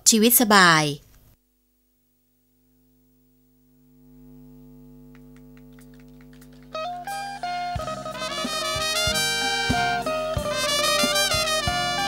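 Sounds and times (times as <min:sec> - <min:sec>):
electrical mains hum: 0:00.0 - 0:08.4
music: 0:04.7 - 0:12.0.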